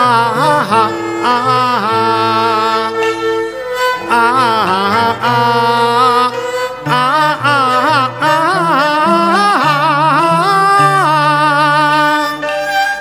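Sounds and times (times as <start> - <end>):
man singing opera with vibrato: 0.0 - 12.5
instrumental ensemble: 0.0 - 13.0
singer breathing: 6.3 - 6.9.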